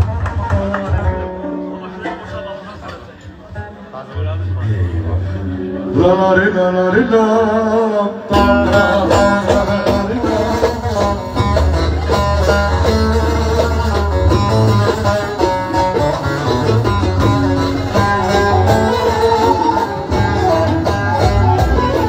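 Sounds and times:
live band playing: 0.0s - 22.0s
bass line: 8.3s - 22.0s
plucked lute melody: 8.3s - 22.0s.

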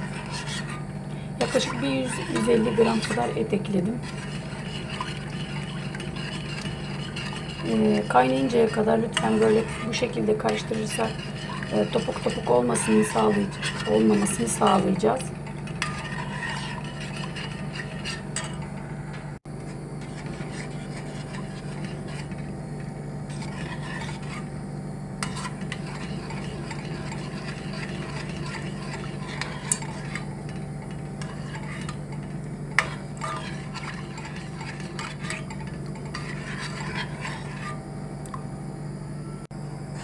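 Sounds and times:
metal spoon scraping a pot: 0.0s - 18.9s, 20.0s - 24.6s, 25.2s - 37.8s
steady low hum: 0.0s - 40.0s.

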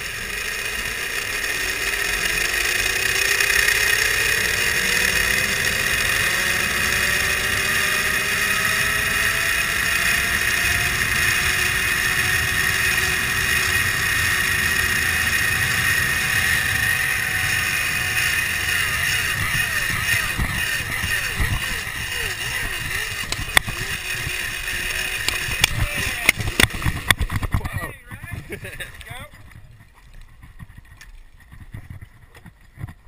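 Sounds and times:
zipline pulleys whirring on cable: 0.0s - 29.6s
wind rushing over microphone: 5.2s - 29.8s.

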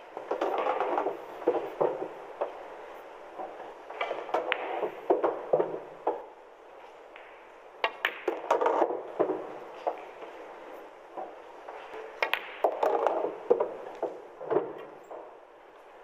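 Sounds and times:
pool balls colliding: 0.0s - 6.4s, 7.1s - 15.4s
faint room noise: 0.0s - 16.0s
balls knocking into pocket: 0.2s - 2.6s, 3.4s - 6.3s, 7.1s - 10.2s, 11.2s - 15.3s
cue tip striking ball: 4.0s - 6.3s, 7.2s - 10.1s, 12.2s - 14.8s.

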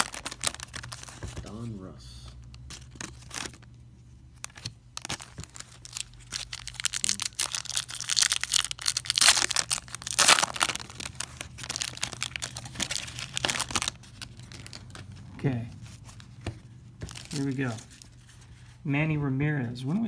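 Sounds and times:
foil packs tearing and crinkling: 0.0s - 1.5s, 4.4s - 15.1s, 17.0s - 18.2s.

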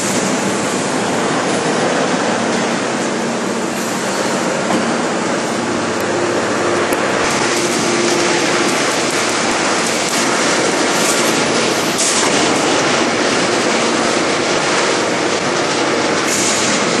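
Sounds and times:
forging press clatter and rumble: 0.0s - 17.0s.

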